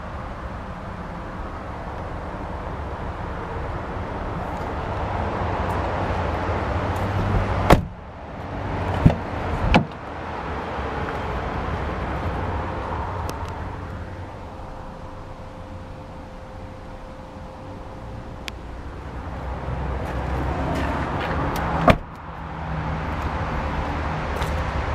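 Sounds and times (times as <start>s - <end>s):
car door shutting: 7.6s - 8.0s, 8.9s - 10.0s, 20.8s - 22.2s
outdoor handling noise: 8.8s - 10.0s.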